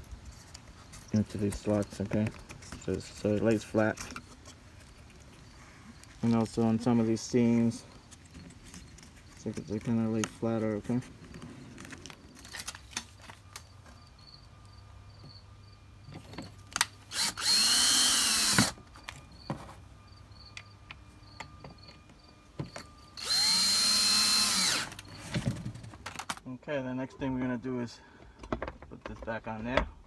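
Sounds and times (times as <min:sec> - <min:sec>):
cordless drill whining: 0:17.1 - 0:19.0, 0:22.8 - 0:25.3.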